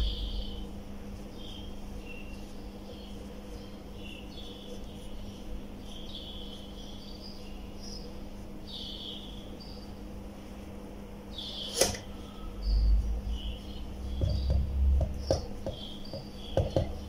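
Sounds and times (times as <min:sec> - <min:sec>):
low hum: 0:00.0 - 0:02.3
sharp tap: 0:14.2 - 0:17.0.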